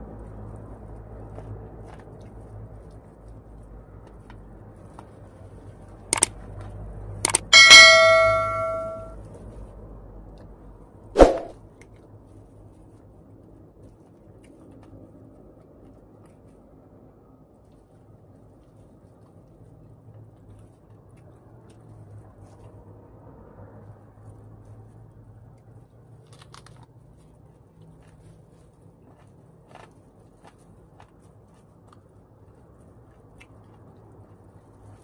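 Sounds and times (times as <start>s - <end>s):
metal object clanging: 7.3s - 9.1s.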